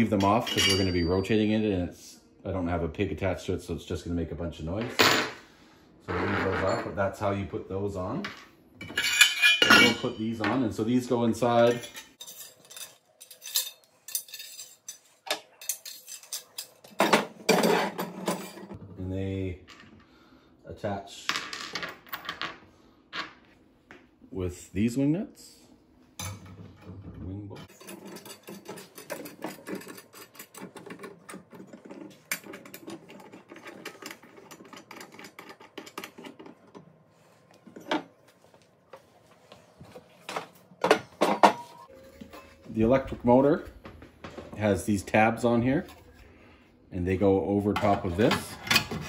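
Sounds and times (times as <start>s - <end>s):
metal parts clinking and knocking: 8.3s - 10.5s, 11.7s - 18.8s, 27.6s - 36.9s.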